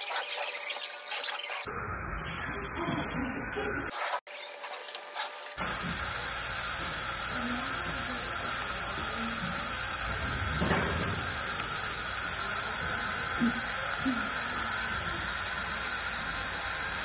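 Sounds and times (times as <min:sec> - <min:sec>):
dental suction hissing: 0:00.0 - 0:17.0.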